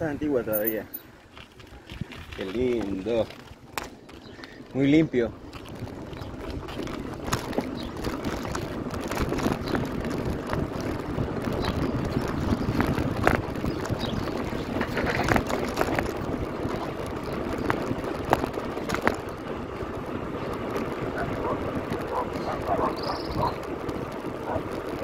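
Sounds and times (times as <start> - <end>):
bicycle tyre rumble on paving: 0.0 - 25.0
sharp clicks and rattles: 0.5 - 1.1, 5.5 - 19.4
wind noise on microphone: 1.6 - 4.4, 5.4 - 25.0.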